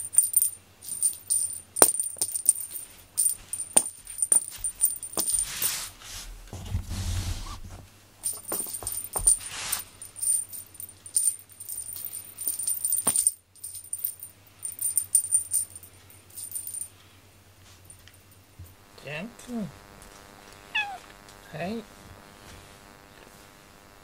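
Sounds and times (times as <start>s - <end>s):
cat toy jingling and rattling: 0.0s - 5.9s, 8.2s - 16.9s
short rustles: 2.6s - 10.5s.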